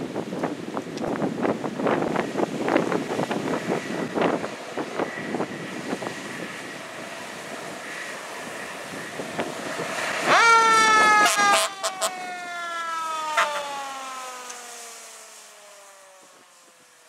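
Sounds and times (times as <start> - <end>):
wind buffeting microphone: 0.0 - 13.0
fire truck siren: 5.2 - 17.0.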